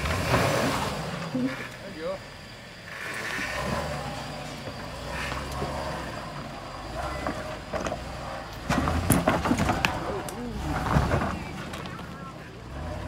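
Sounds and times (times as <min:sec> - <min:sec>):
truck engine rumbling under load: 0:00.0 - 0:13.0.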